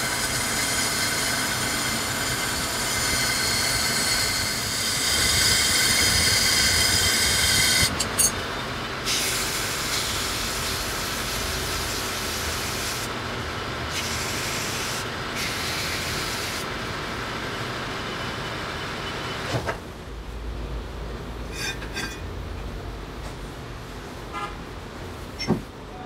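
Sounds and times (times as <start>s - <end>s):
metal lathe hissing: 0.0s - 8.4s, 9.0s - 13.2s, 13.9s - 16.7s.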